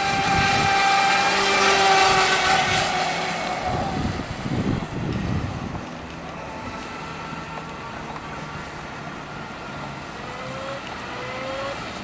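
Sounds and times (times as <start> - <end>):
electric boat motor whining: 0.0 - 12.0.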